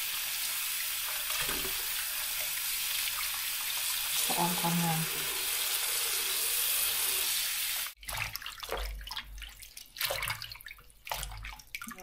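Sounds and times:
tap running into sink: 0:01.2 - 0:01.9.

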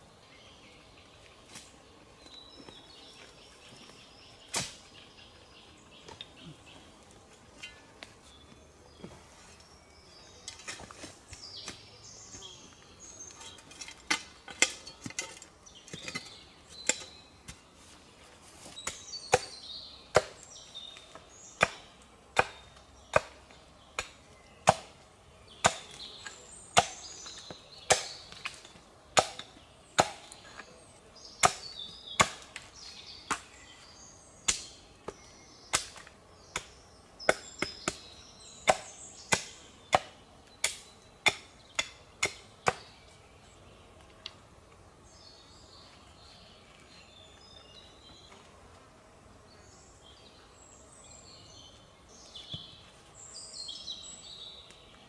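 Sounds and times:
birds chirping: 0:00.0 - 0:55.0
axe chopping wood: 0:20.1 - 0:20.4, 0:21.6 - 0:23.4, 0:24.0 - 0:25.0, 0:25.6 - 0:26.0, 0:26.8 - 0:27.1, 0:27.9 - 0:28.6, 0:29.2 - 0:30.4, 0:31.4 - 0:32.7, 0:38.6 - 0:42.9.

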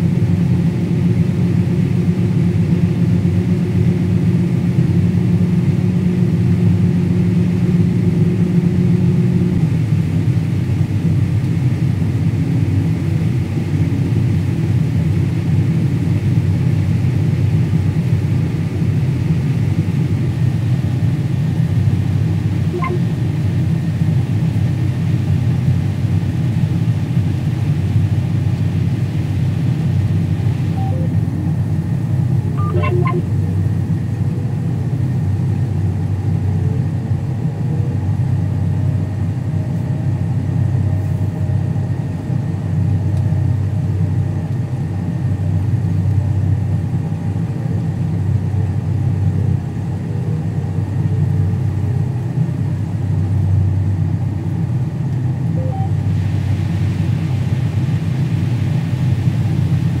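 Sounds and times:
combine harvester engine drone: 0:00.0 - 1:00.0
brief beeping: 0:22.8 - 0:23.1, 0:30.7 - 0:31.1, 0:32.6 - 0:33.3, 0:55.6 - 0:56.0.

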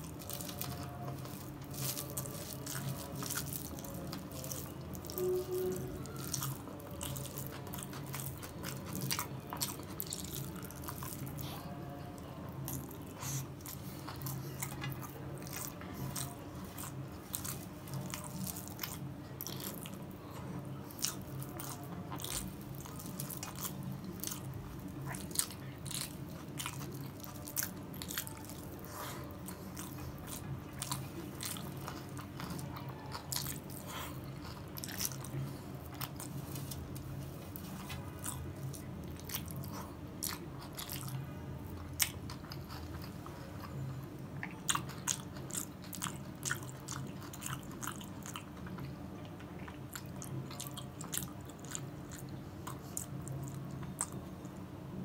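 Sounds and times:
close chewing: 0:00.0 - 0:54.6
steady low hum: 0:00.0 - 0:55.0.

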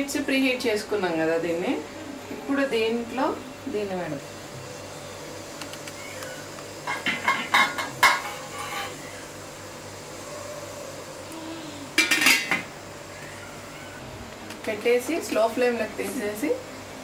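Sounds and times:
cookware clinking and clattering: 0:06.8 - 0:09.0, 0:12.0 - 0:12.7.

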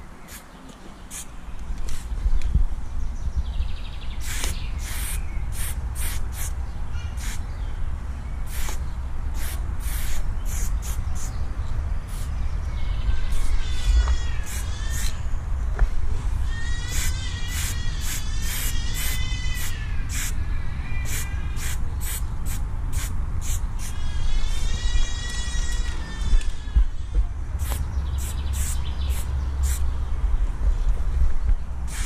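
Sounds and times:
spray paint can hissing: 0:00.3 - 0:00.5, 0:01.1 - 0:01.3, 0:01.9 - 0:02.1, 0:04.2 - 0:06.6, 0:07.2 - 0:07.4, 0:08.5 - 0:11.4, 0:12.1 - 0:12.3, 0:13.3 - 0:15.2, 0:16.8 - 0:20.4, 0:21.0 - 0:24.7, 0:27.6 - 0:29.8
steady low rumble: 0:15.1 - 0:16.5, 0:19.8 - 0:32.0.

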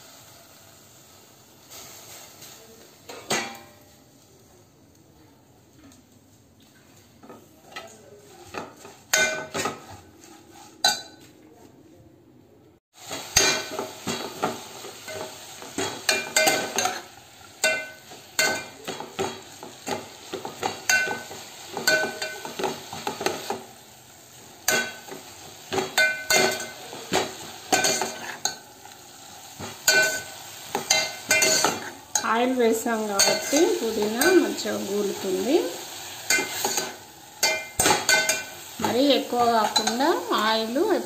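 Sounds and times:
leaves sizzling in oil: 0:00.0 - 0:04.8, 0:06.9 - 0:11.0, 0:12.9 - 0:41.0
metal spoon scraping a pot: 0:27.7 - 0:28.6, 0:29.9 - 0:32.3.

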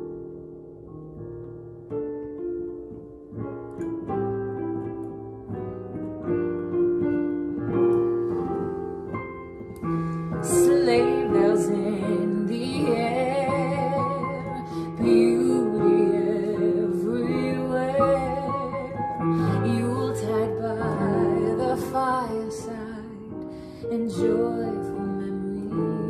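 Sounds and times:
slow piano ballad: 0:00.0 - 0:26.0
woman singing with vibrato: 0:10.3 - 0:26.0.

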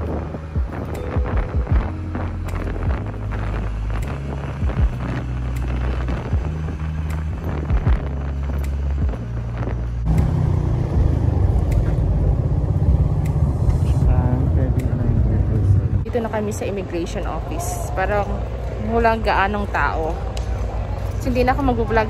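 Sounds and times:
music with beat and bass: 0:00.0 - 0:10.3
motorcycle rumble: 0:00.0 - 0:22.0.

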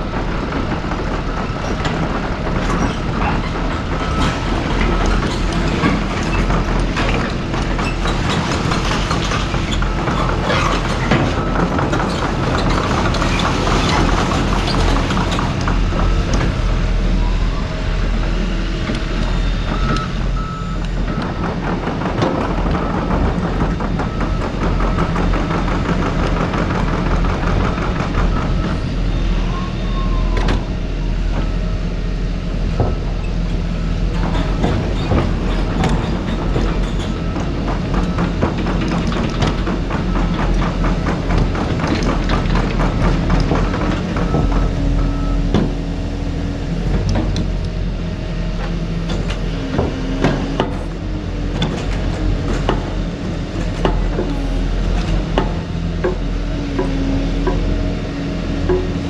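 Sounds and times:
diesel engine drone: 0:00.0 - 0:59.0.

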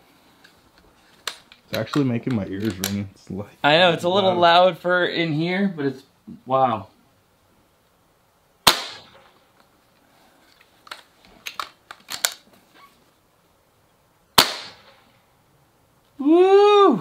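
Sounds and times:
air rifle shots: 0:08.6 - 0:09.4, 0:14.4 - 0:15.1.

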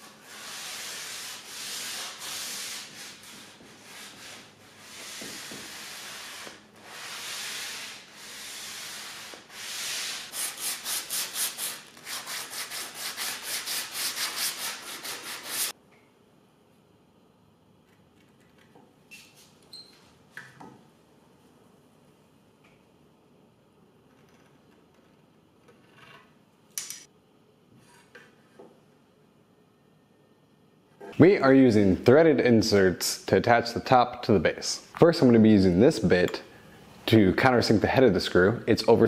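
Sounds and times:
hand sanding wood: 0:00.0 - 0:15.7.

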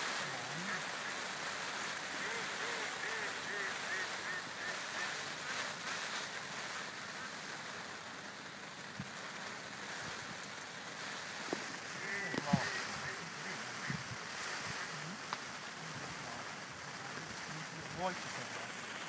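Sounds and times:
lake water lapping: 0:00.0 - 0:08.8, 0:09.9 - 0:19.0
wind: 0:00.0 - 0:19.0.

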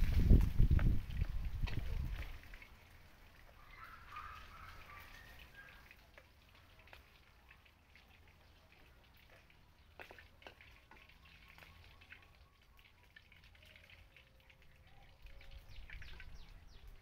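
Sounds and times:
cooking clicks and taps in a wok: 0:08.8 - 0:11.8.

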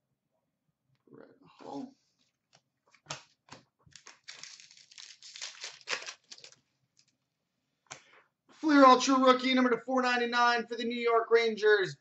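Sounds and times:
wrapper crinkling and tearing: 0:03.9 - 0:07.1.

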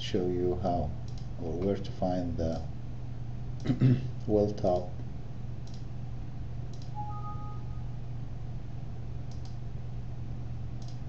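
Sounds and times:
steady low hum: 0:00.0 - 0:11.0
computer mouse clicks: 0:01.1 - 0:01.3, 0:05.6 - 0:05.9, 0:06.7 - 0:07.0, 0:09.3 - 0:09.6, 0:10.8 - 0:11.0
faint two-note tone: 0:07.0 - 0:08.0.

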